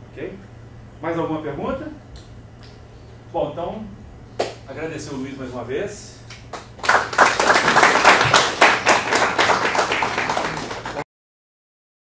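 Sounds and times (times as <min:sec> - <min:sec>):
audience applauding: 0:06.5 - 0:11.0.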